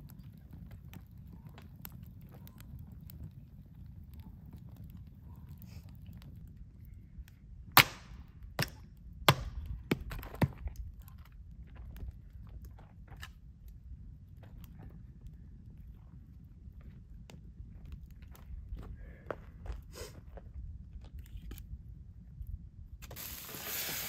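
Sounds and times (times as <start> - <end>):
axe splitting log: 7.8 - 10.6.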